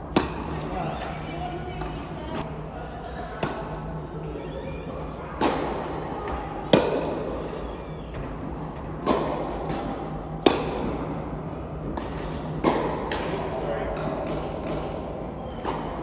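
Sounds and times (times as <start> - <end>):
tennis ball hit by racket: 0.1 - 0.6, 6.7 - 7.2, 9.0 - 11.0, 11.9 - 13.4.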